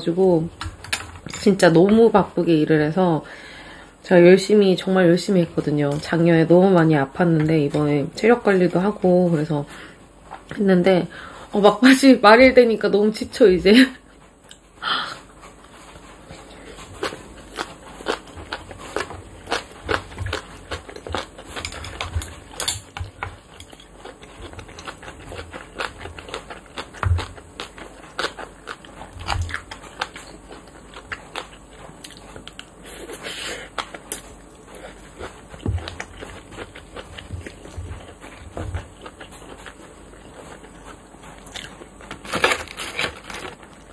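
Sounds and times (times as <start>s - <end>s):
chewing and mouth noises: 15.3s - 43.9s
chopsticks clicking on bowls: 20.9s - 23.9s.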